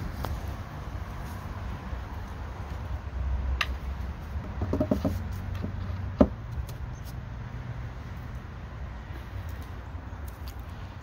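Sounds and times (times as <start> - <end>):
wooden lid knocking on box: 4.5 - 5.2.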